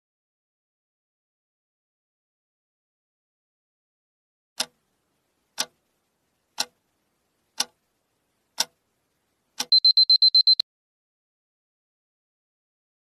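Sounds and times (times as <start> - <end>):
clock ticking: 4.6 - 4.9, 5.5 - 6.9, 7.6 - 7.9, 8.6 - 8.8, 9.6 - 10.6
rapid high beeps: 9.7 - 10.6.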